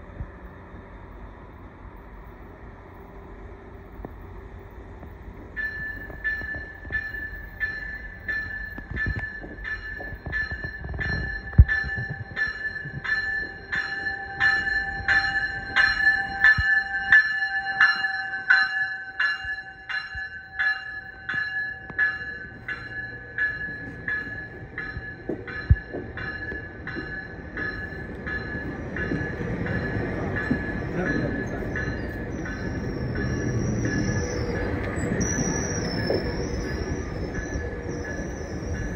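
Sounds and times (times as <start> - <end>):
train coaches rumbling: 0.0 - 38.9
train bell ringing: 3.0 - 38.9.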